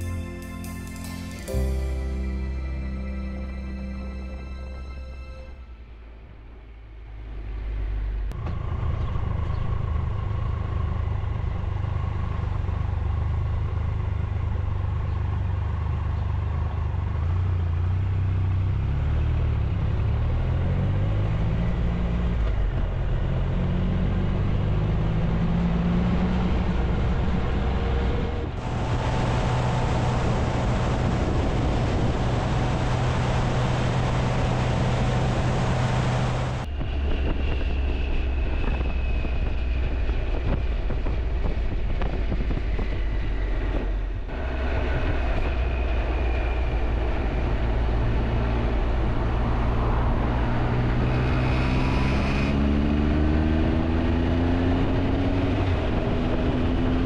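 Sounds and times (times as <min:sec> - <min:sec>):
wind rush on microphone: 0:26.1 - 0:57.0
motorcycle engine revving: 0:37.8 - 0:57.0.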